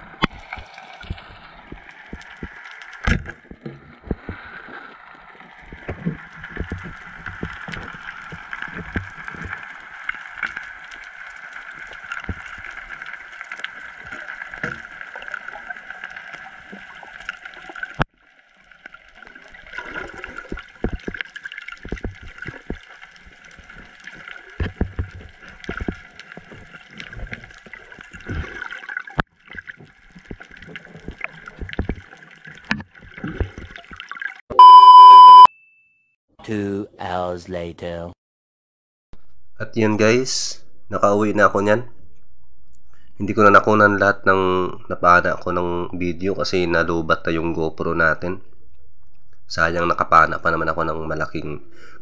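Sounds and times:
underwater clicks and knocks: 0.1 - 4.5, 5.6 - 10.6, 12.1 - 12.9, 19.8 - 34.0.

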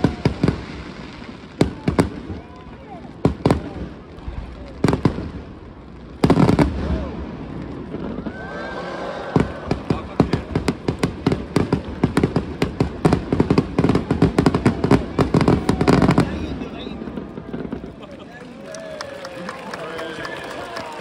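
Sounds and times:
fireworks bursting: 0.0 - 18.3.

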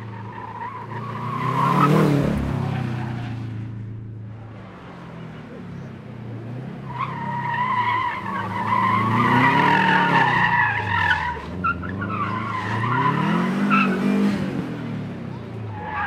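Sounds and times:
car engine revving: 0.0 - 15.9.

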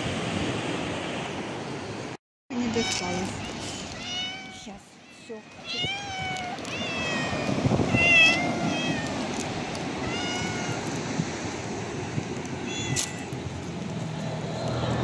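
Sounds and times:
cat meowing: 2.7 - 9.3, 10.0 - 11.1, 12.6 - 13.4.

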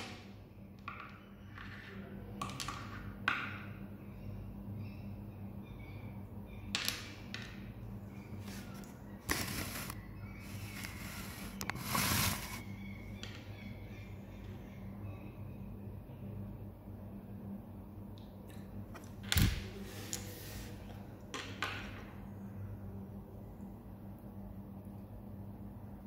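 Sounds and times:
low steady hum: 0.0 - 26.0
short scrapes: 8.4 - 12.7.

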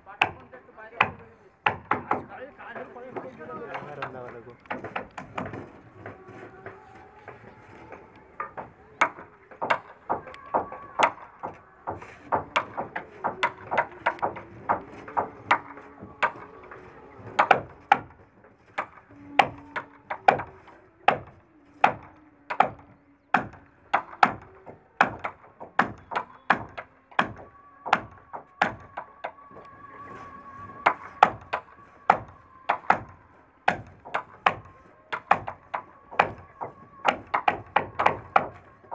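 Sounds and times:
hand tools knocking on wood: 0.1 - 29.6, 30.7 - 38.9.

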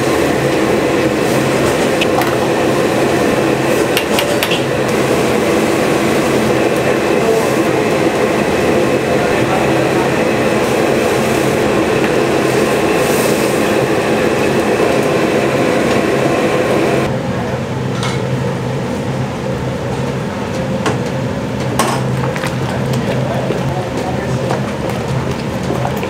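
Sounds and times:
steady rushing roar: 0.0 - 17.8.

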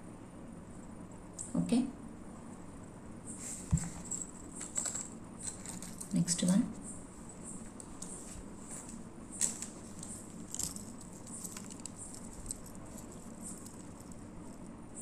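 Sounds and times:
faint background hum: 0.0 - 15.0
metal earrings clicking and jingling: 3.9 - 6.5, 9.3 - 14.7.

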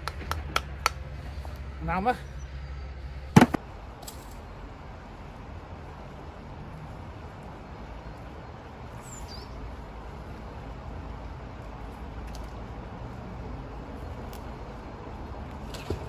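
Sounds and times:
low outdoor background rumble: 0.0 - 16.0
sharp knock: 3.4 - 3.6.

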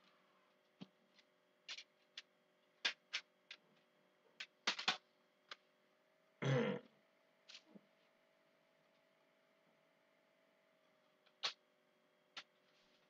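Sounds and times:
faint steady hum: 0.0 - 13.0
objects clicking and knocking: 0.8 - 5.6.

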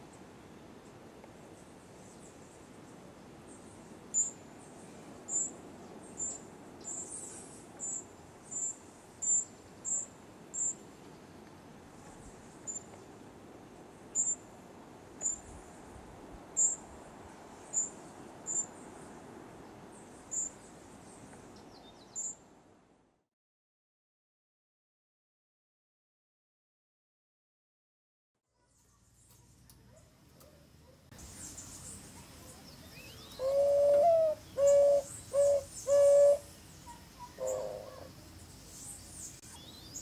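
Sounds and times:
faint background hiss: 0.0 - 23.2, 28.4 - 40.0
young bird begging calls: 33.3 - 38.1.

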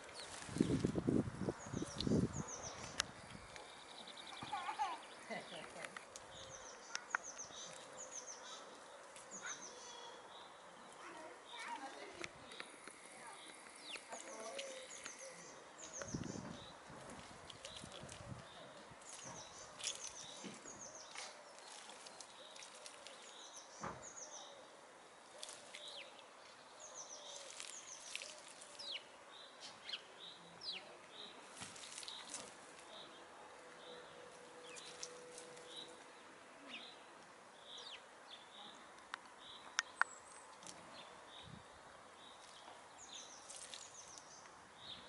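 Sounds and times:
hens scratching in stony soil: 0.0 - 10.2, 10.8 - 23.8, 25.2 - 29.9, 31.1 - 33.2, 33.8 - 36.2, 42.2 - 44.4
small birds chirping: 0.0 - 45.0.

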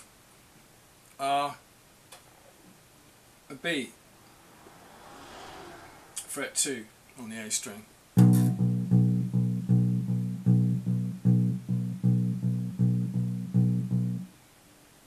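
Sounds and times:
electric bass guitar notes: 8.2 - 14.3.

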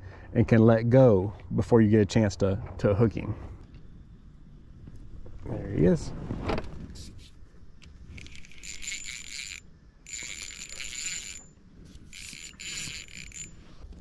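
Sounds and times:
spinning reel whirring: 8.1 - 14.0.

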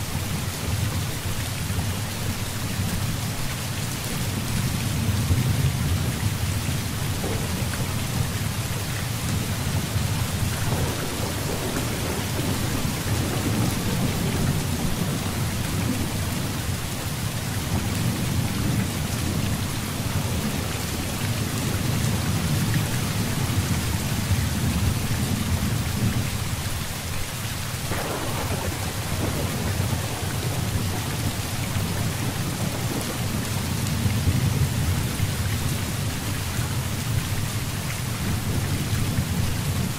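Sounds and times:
heavy rain pouring: 0.0 - 39.9
thunder rumbling: 4.3 - 26.2, 27.9 - 37.2
sharp thunderclap: 7.0 - 16.5, 27.9 - 35.0.

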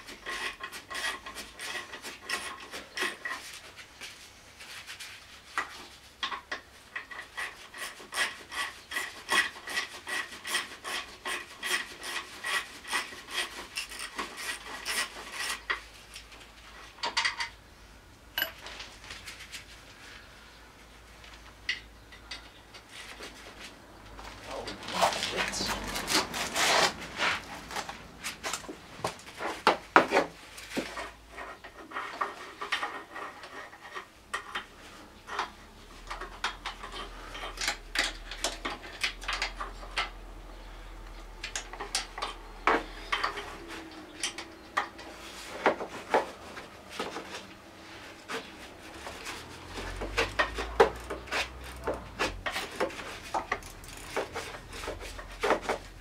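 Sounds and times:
tools clicking and knocking on metal: 18.4 - 18.6, 30.8 - 40.4, 41.4 - 46.3, 49.2 - 56.0.

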